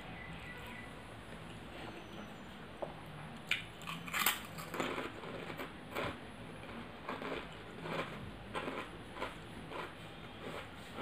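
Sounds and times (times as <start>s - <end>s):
person chewing crunchy food: 3.8s - 11.0s.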